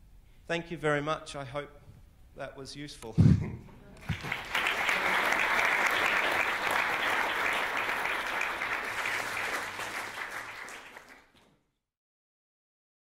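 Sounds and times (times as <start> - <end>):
audience applauding: 4.0 - 11.5.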